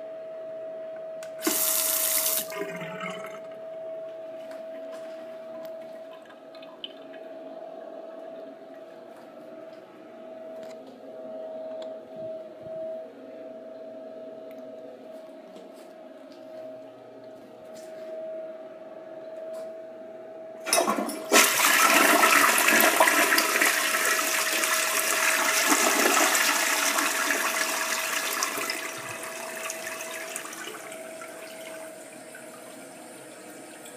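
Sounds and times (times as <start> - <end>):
toilet flushing: 1.4 - 3.6, 20.6 - 33.9.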